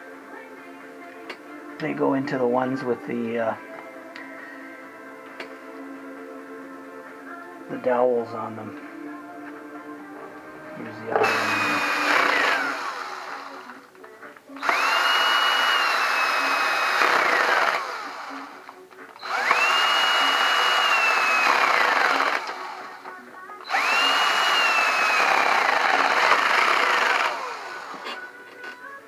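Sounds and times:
power drill motor whine: 11.1s - 13.8s, 14.6s - 28.3s.

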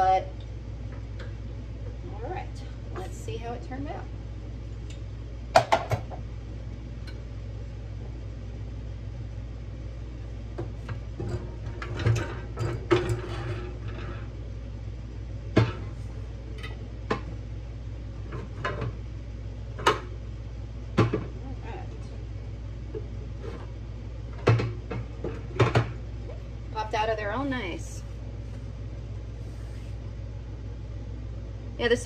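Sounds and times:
steady low hum: 0.0s - 32.0s
metal clanks and knocks: 11.2s - 14.3s.

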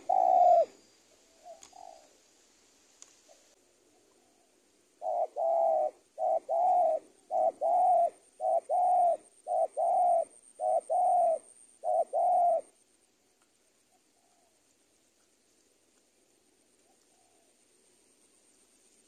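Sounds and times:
dove cooing: 0.0s - 2.2s, 3.3s - 12.8s, 13.9s - 14.7s, 16.7s - 17.6s.

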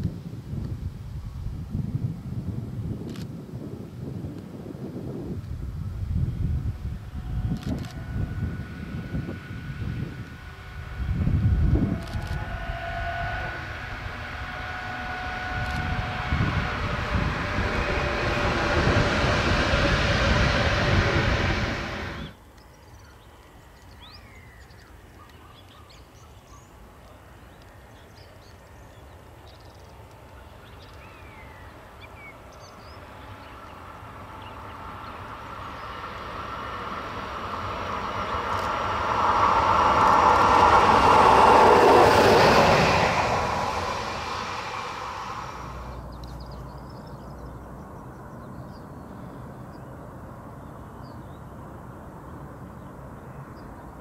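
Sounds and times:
high locomotive whine: 0.0s - 54.0s
electric locomotive passing: 1.1s - 54.0s
distant rumble: 5.6s - 22.4s, 31.4s - 48.2s.

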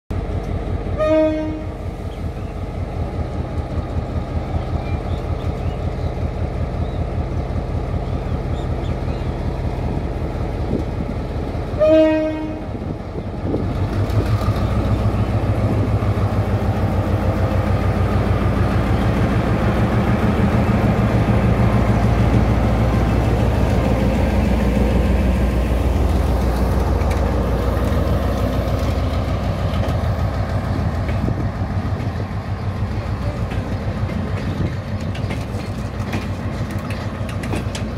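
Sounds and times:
diesel locomotive engine throbbing: 0.1s - 37.9s
locomotive horn blasts: 1.0s - 1.8s, 11.8s - 12.8s.

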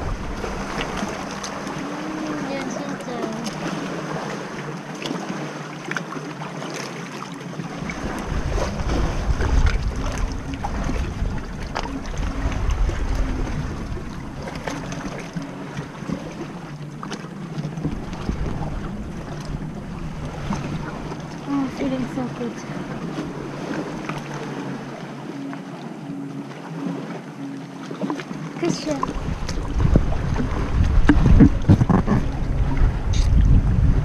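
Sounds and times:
wind buffeting microphone: 0.0s - 4.3s, 7.8s - 16.7s, 28.6s - 34.0s
sea water lapping and splashing: 0.0s - 34.0s.

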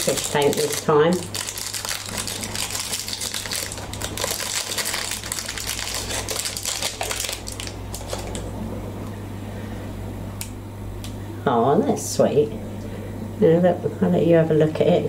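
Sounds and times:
plastic wrapping crinkling: 0.0s - 8.5s.

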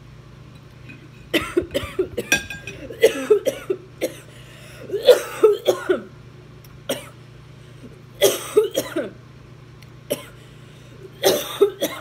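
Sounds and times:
woman coughing: 1.4s - 4.3s, 4.9s - 6.1s, 6.9s - 7.2s, 8.2s - 9.2s, 10.1s - 10.4s, 11.2s - 12.0s.

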